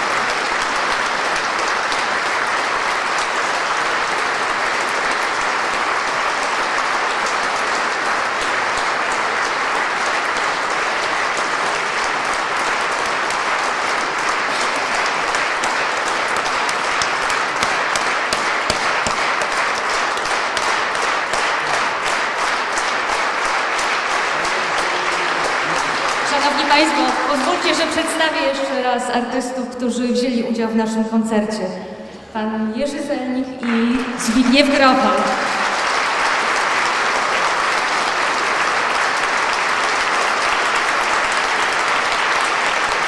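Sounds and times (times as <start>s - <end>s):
audience applauding: 0.0s - 28.7s, 33.6s - 43.0s.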